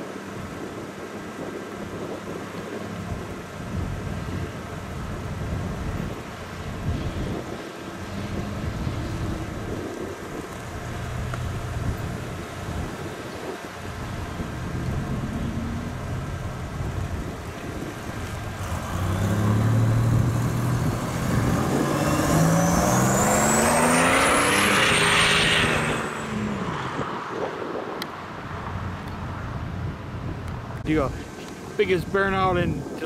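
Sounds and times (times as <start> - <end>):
car engine accelerating: 1.3 - 28.0
high turbo whistle: 21.3 - 26.8.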